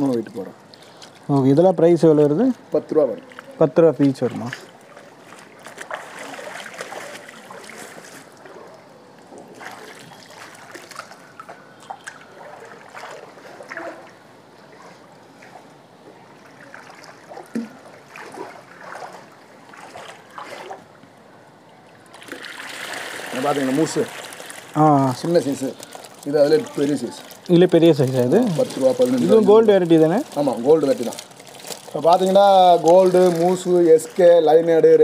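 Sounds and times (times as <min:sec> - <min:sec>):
water sloshing and splashing: 0:02.2 - 0:35.0
water dripping: 0:09.2 - 0:14.7, 0:21.6 - 0:34.6.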